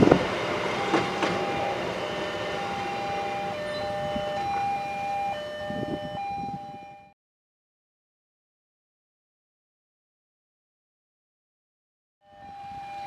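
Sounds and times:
level crossing warning alarm: 0.0s - 7.2s, 12.2s - 13.0s.

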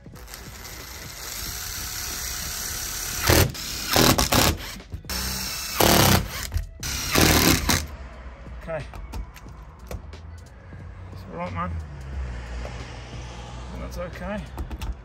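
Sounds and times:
cordless drill driving screws: 0.1s - 7.8s.

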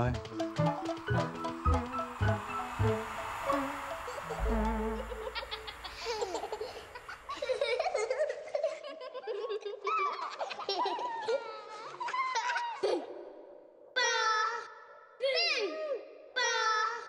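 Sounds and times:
low musical note: 0.0s - 8.0s
babyish giggling and laughing: 4.1s - 13.1s.

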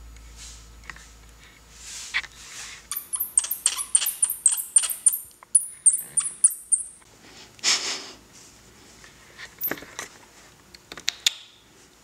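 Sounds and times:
bat high-pitched chirps: 2.9s - 7.0s.

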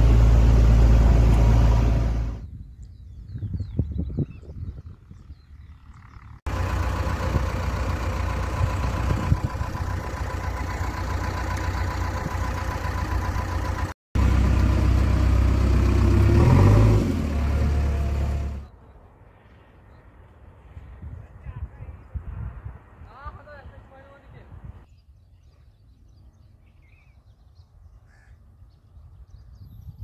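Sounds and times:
diesel engine running: 0.0s - 2.4s, 5.8s - 18.7s.

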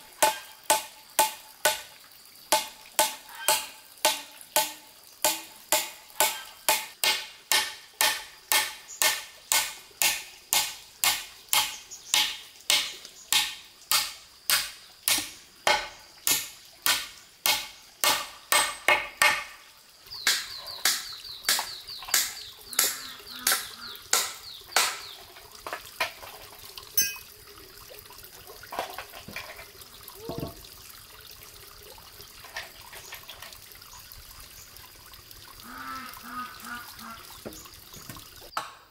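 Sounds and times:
kitchen utensil striking: 27.0s - 27.3s.

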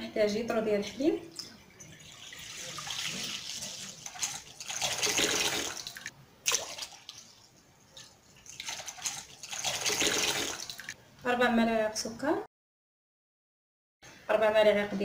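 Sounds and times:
milk pouring into bowl: 1.7s - 10.9s.

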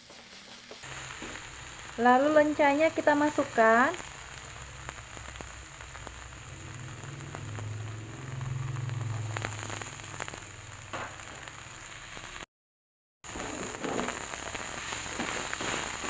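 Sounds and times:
food sizzling in oil: 0.0s - 12.5s, 13.2s - 16.0s
low hum: 5.7s - 11.9s.

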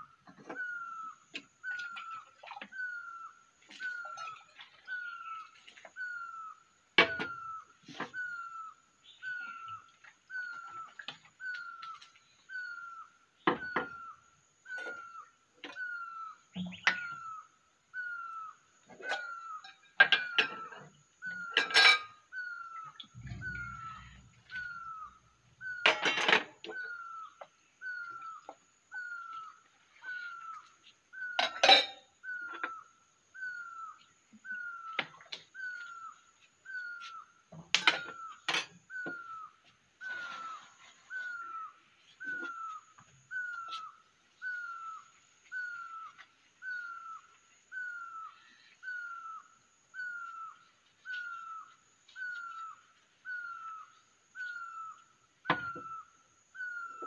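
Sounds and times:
bird calling short note: 23.2s - 25.8s.

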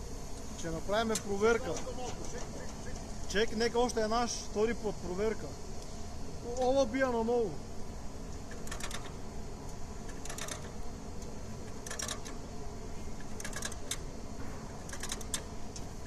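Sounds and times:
steady low hum: 0.0s - 16.0s
rapid light clicking: 8.3s - 12.5s, 13.2s - 16.0s.

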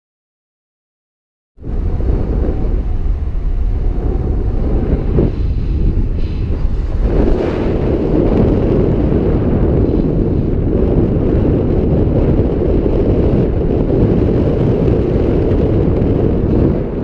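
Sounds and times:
wind rumble on microphone: 1.6s - 17.0s.

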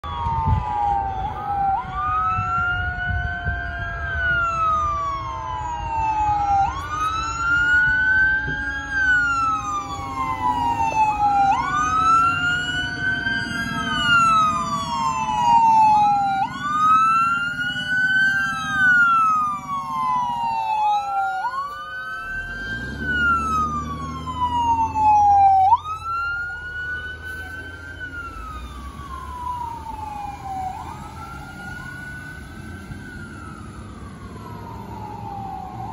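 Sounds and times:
fire truck siren wailing: 0.0s - 35.9s.

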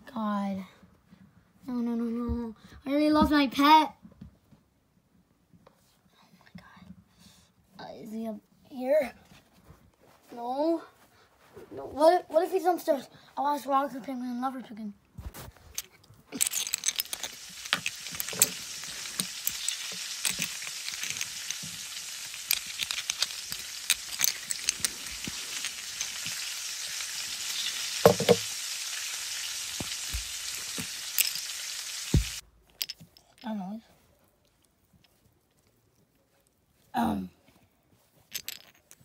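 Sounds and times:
crackling sizzling hiss: 16.3s - 32.4s.

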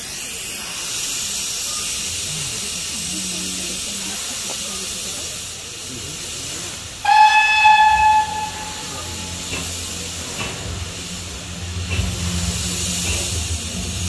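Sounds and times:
escaping steam hissing: 0.0s - 14.0s
steam locomotive whistle: 7.0s - 9.6s.

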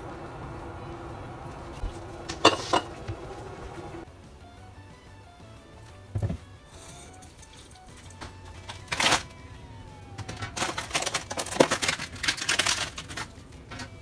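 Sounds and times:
plastic container rattling and clicking: 10.2s - 13.9s.

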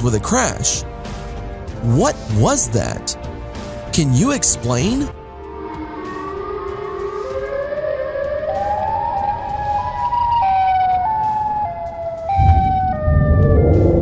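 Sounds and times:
eerie siren-like tone: 5.2s - 14.0s
low rumble: 12.3s - 14.0s.

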